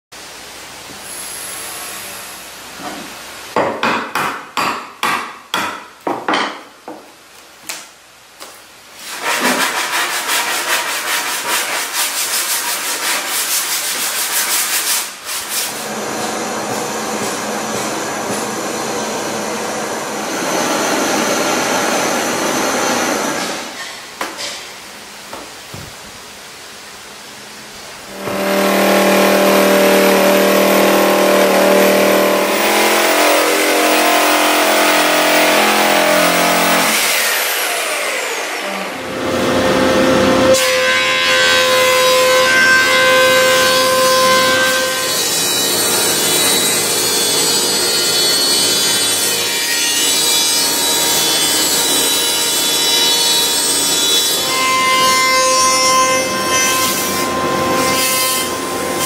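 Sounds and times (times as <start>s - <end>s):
thickness planer running: 15.7s - 23.7s, 28.1s - 49.6s
jigsaw cutting wood: 28.2s - 40.5s.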